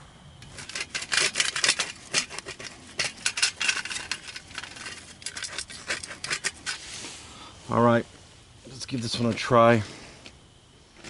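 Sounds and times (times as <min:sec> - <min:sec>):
knife scraping on stone: 0:00.4 - 0:06.9.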